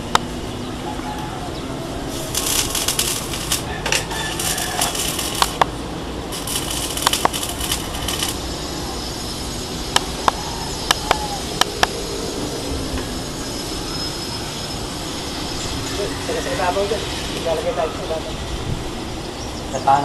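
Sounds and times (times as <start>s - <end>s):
welding arc sizzling and crackling: 2.0s - 12.1s.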